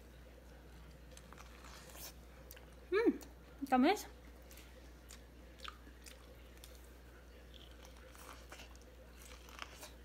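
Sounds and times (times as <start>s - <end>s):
chewing corn: 0.8s - 3.4s, 4.4s - 10.0s.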